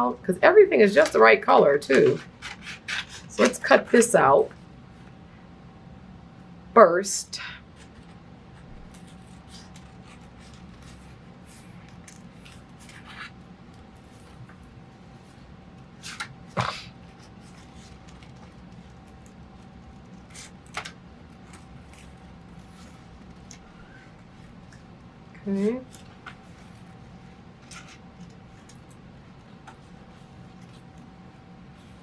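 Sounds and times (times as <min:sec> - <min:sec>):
steady low hum: 0:00.0 - 0:32.0
scissors snipping paper: 0:01.0 - 0:03.8, 0:07.8 - 0:13.4.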